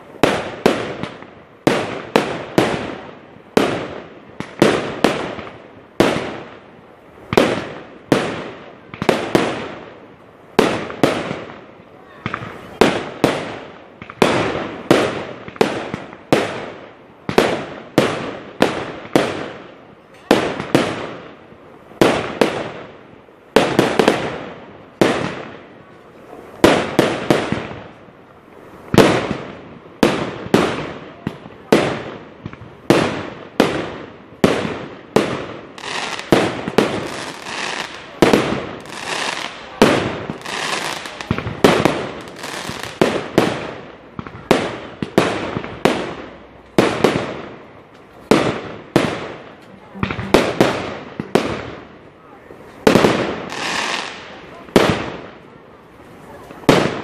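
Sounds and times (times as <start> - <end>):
fireworks bursting: 0.0 - 57.0.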